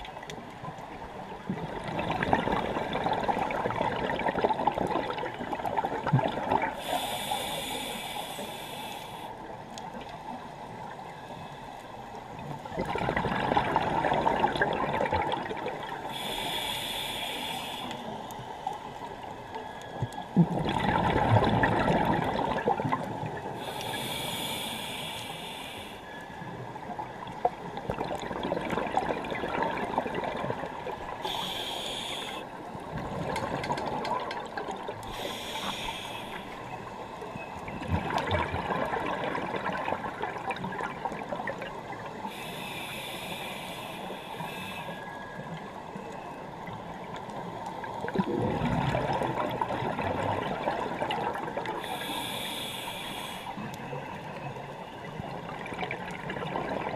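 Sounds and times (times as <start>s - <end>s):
exhaled bubbles rushing: 1.5s - 6.8s, 12.7s - 15.9s, 20.4s - 23.3s, 27.9s - 31.0s, 37.8s - 41.9s, 48.0s - 51.7s
regulator hissing inhale: 6.7s - 9.6s, 16.0s - 18.6s, 23.6s - 26.4s, 31.2s - 32.6s, 35.0s - 37.2s, 42.2s - 45.4s, 51.8s - 53.9s.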